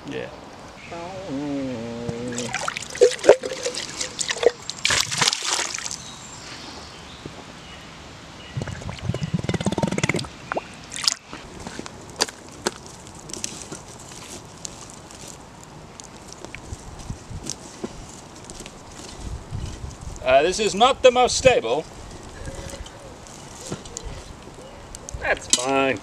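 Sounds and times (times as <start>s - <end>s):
river water splashing: 2.3s - 6.0s, 10.2s - 11.4s
water dripping: 2.3s - 6.0s, 8.6s - 11.4s
bottle gurgling as it fills: 2.4s - 4.6s, 8.6s - 10.7s.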